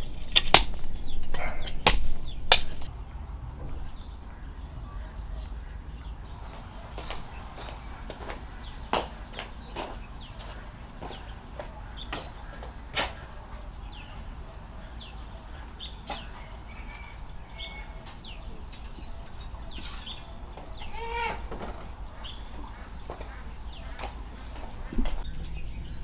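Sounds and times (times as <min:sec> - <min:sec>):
birds chirping: 0:00.0 - 0:26.0
chicken call: 0:11.1 - 0:25.1.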